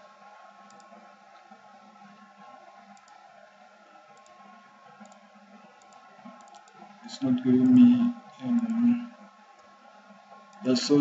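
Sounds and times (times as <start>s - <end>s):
computer mouse clicks: 0.6s - 1.0s, 2.9s - 3.2s, 4.2s - 4.4s, 5.0s - 5.2s, 5.8s - 6.9s.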